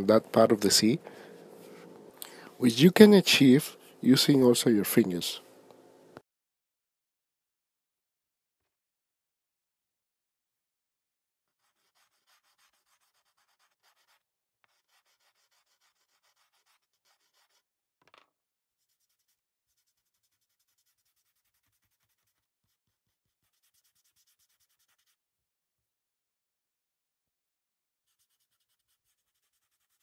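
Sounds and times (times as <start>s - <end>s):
pastel stick rubbing on paper: 11.5s - 17.7s, 18.8s - 25.2s, 28.1s - 30.0s.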